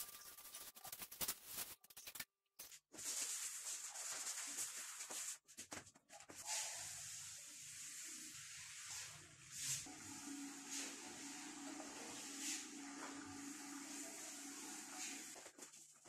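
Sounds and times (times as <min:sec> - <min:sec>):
scratchy rubbing of countertop: 0:02.7 - 0:09.9, 0:10.6 - 0:16.0.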